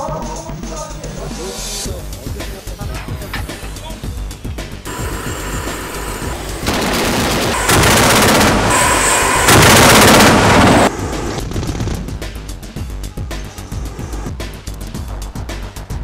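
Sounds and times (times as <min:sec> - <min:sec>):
autocannon rapid fire bursts: 0:04.9 - 0:12.1.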